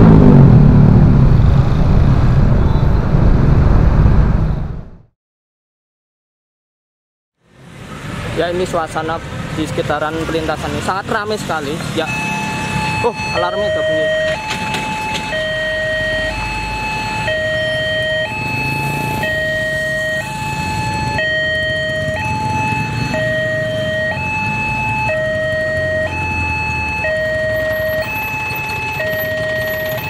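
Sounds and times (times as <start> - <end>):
road traffic engines: 0.0 - 3.6, 7.4 - 30.0
two-tone crossing alarm: 12.0 - 30.0.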